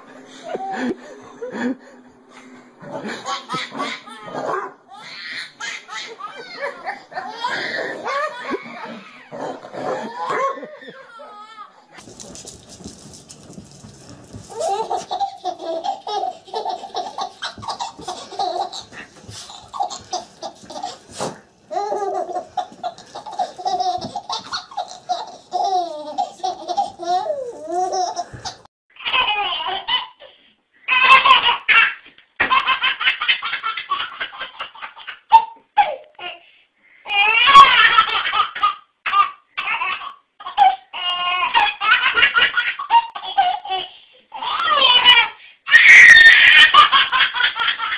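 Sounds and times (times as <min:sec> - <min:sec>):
baby giggling: 0:02.9 - 0:11.6, 0:14.5 - 0:30.3
baby belly laughs: 0:14.5 - 0:30.3, 0:37.2 - 0:47.9.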